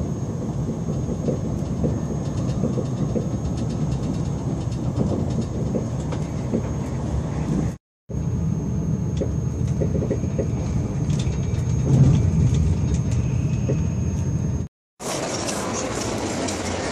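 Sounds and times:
train interior low noise: 0.0s - 16.9s
faint high whine: 6.8s - 16.4s.

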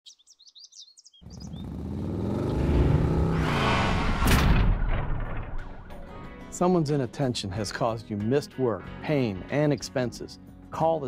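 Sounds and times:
birds chirping: 0.0s - 3.3s
vehicle engine passing by: 1.2s - 4.8s
rush of noise: 1.7s - 5.7s.

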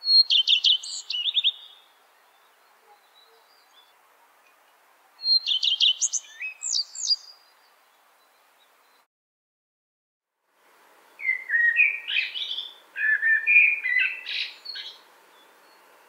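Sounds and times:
bird singing: 0.0s - 9.1s, 11.0s - 16.0s
faint hiss: 0.0s - 9.1s, 10.4s - 16.0s.

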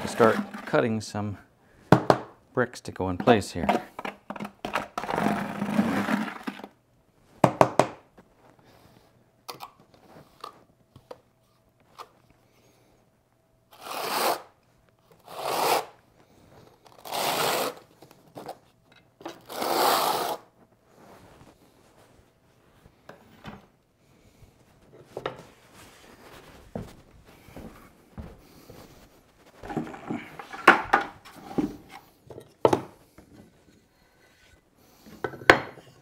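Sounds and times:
trowel scraping mortar: 0.0s - 0.8s, 13.8s - 14.5s, 15.2s - 16.0s, 17.0s - 17.8s, 19.4s - 20.4s.

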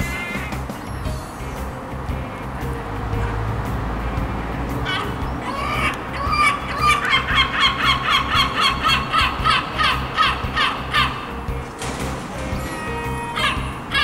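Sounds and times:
gull calling: 0.0s - 0.8s, 4.1s - 11.5s, 12.3s - 14.0s.

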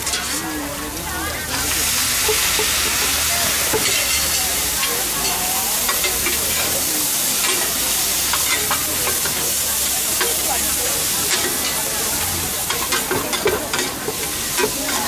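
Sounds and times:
metal spatulas scraping a pan: 0.0s - 0.5s, 1.6s - 15.0s
noodles sizzling on metal pan: 0.0s - 15.0s.

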